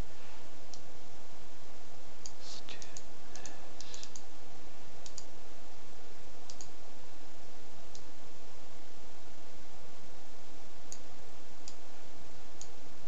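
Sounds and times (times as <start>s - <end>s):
steady hiss: 2.3s - 5.2s
mouse buttons clicking: 5.0s - 5.3s.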